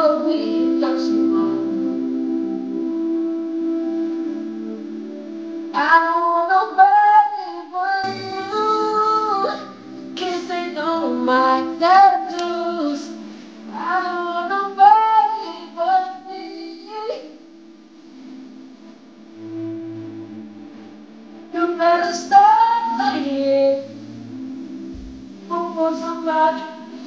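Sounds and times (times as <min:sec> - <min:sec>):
backing track of held chords: 0:00.0 - 0:27.0
man singing vocal runs: 0:05.7 - 0:17.4, 0:21.5 - 0:24.0, 0:25.1 - 0:27.0.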